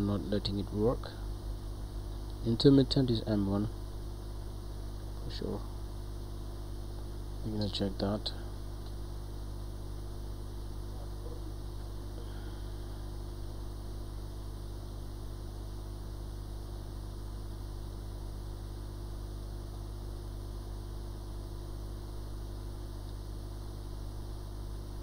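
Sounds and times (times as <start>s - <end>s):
electrical hum: 0.0s - 25.0s
hot air blower: 12.1s - 13.2s.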